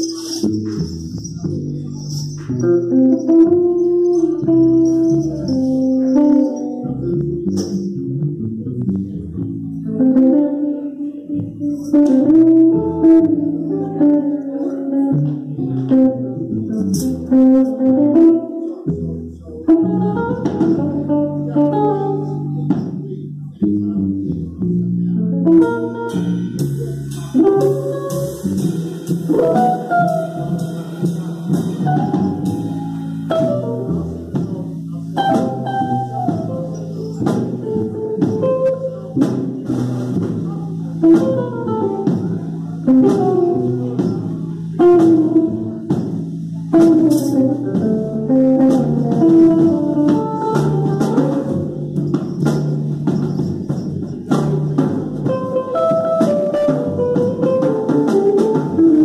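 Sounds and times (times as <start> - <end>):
electric guitar melody: 0.0 - 59.0
upright bass: 0.0 - 59.0
snare and cymbal hits: 26.1 - 34.6.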